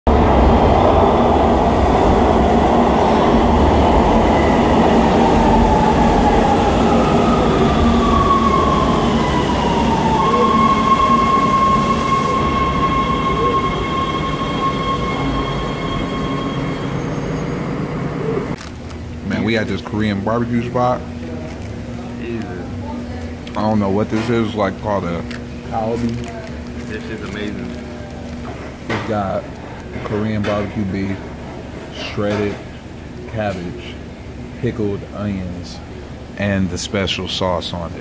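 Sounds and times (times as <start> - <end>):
high train whine: 0.0 - 38.0
subway train rumble: 0.0 - 38.0.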